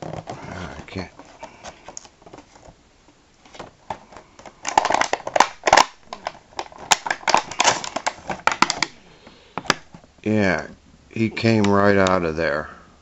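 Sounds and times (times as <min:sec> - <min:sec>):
plastic packaging crinkling: 0:00.0 - 0:02.8, 0:03.4 - 0:10.1.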